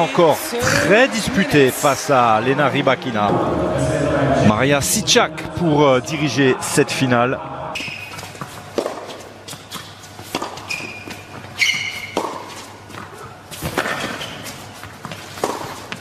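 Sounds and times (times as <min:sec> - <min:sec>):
racket striking tennis ball: 0:07.8 - 0:16.0
shoes squeaking on court: 0:07.8 - 0:16.0
tennis ball bouncing: 0:07.8 - 0:16.0.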